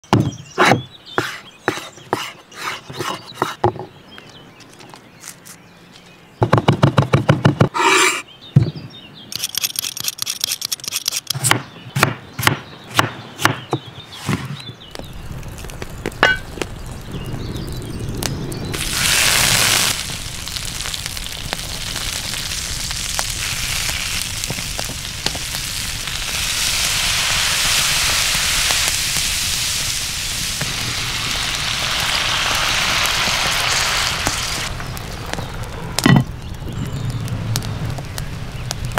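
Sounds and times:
meat sizzling in hot oil: 18.6s - 34.7s.

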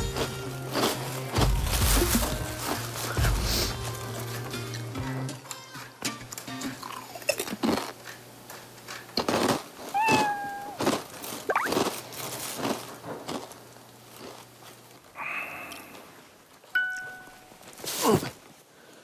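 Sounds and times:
chips being chewed: 6.6s - 14.9s
cat meowing: 9.9s - 10.8s.

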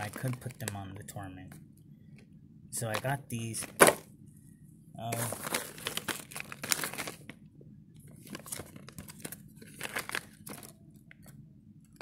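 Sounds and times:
plastic bag crinkling: 0.0s - 0.8s, 5.1s - 7.4s, 8.1s - 11.3s.

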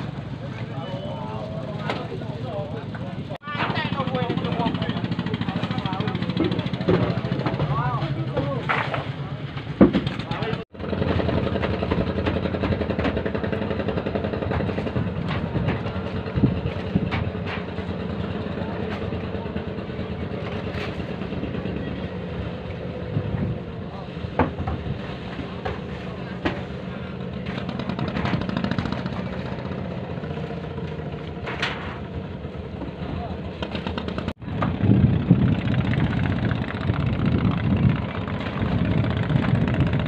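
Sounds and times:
boat engine chugging: 2.6s - 8.6s, 9.2s - 31.4s, 32.0s - 40.0s.

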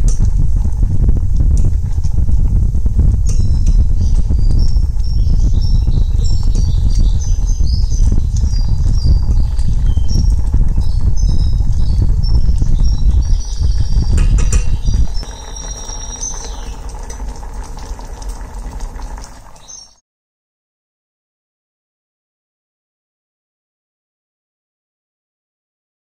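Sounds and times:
loud steady low rumble: 0.0s - 19.0s.

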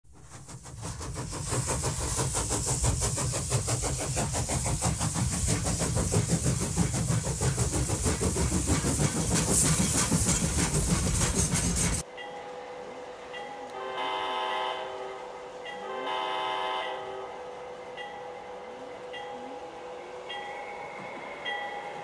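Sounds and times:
engine running with pulsing hiss: 0.1s - 12.1s.

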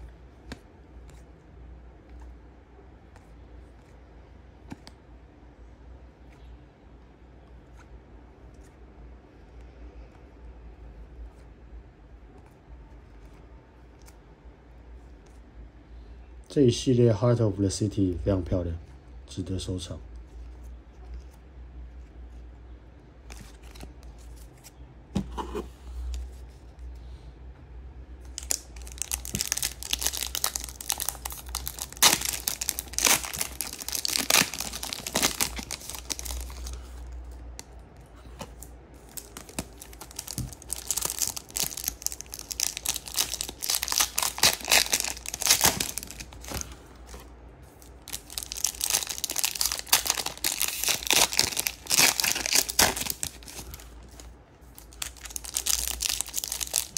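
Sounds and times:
low steady hum: 0.0s - 56.9s
foil wrappers tearing and crinkling: 28.4s - 36.7s, 39.1s - 46.7s, 47.9s - 53.8s, 54.8s - 56.9s.

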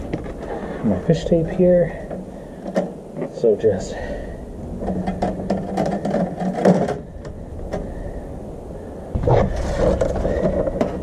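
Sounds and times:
low rumble: 3.9s - 11.0s
tape crackling and rasping: 4.6s - 7.9s, 9.2s - 11.0s.

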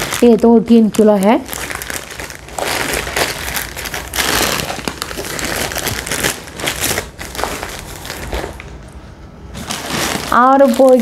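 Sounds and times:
plastic bags crinkling: 0.0s - 11.0s.

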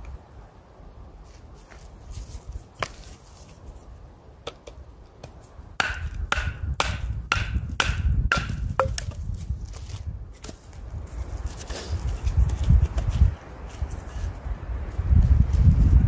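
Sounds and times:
knife chopping into dry stick: 4.5s - 9.2s.

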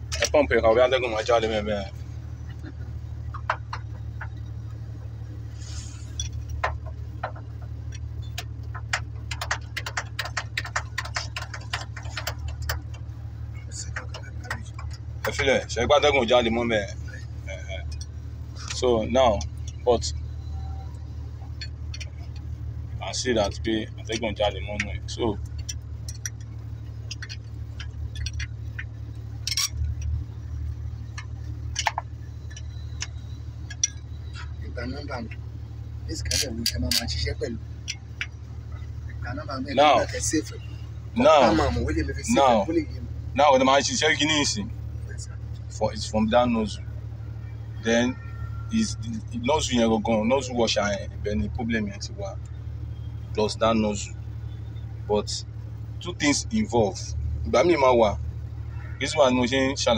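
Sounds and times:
diesel engine humming: 0.0s - 59.9s
spanner clicking on metal: 7.3s - 13.1s, 24.8s - 30.1s
metal spanner clicking on fittings: 29.4s - 30.1s.

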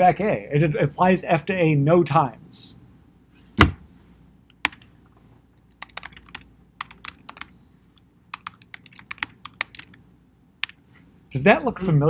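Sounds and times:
loud knock: 3.6s - 3.8s
keyboard typing clicks: 5.8s - 7.5s, 8.3s - 10.0s.

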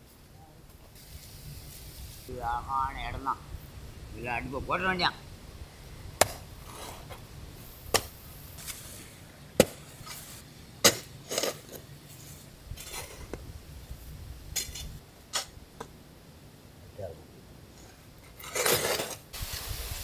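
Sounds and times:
hoe striking hard soil: 6.2s - 7.2s, 7.8s - 11.8s, 18.4s - 19.2s.

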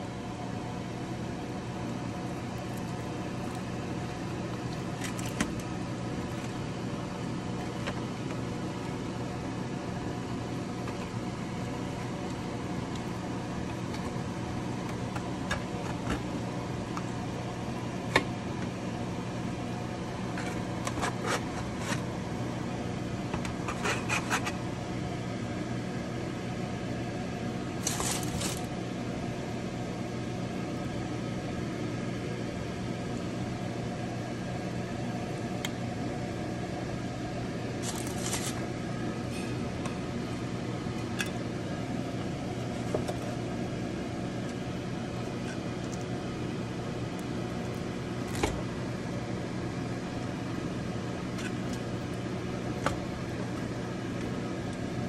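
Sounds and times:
mechanical hum: 0.0s - 55.0s.

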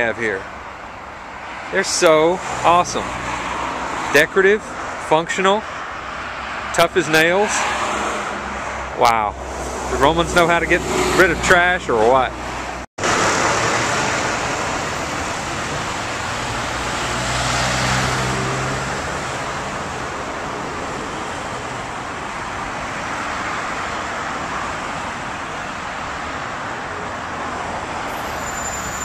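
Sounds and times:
city road traffic: 0.0s - 29.0s
vehicle engine passing: 6.3s - 21.8s.

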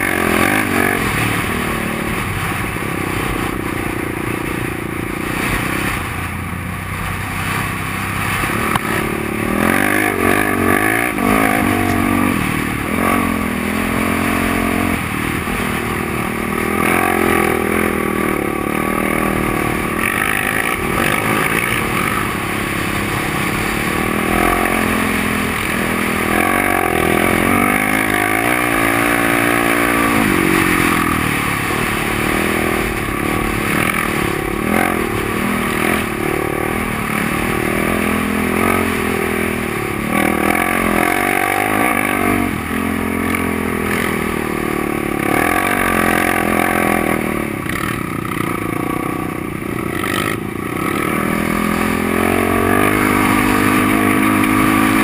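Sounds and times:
wind noise: 0.0s - 42.9s
quad engine revving: 0.0s - 55.0s.

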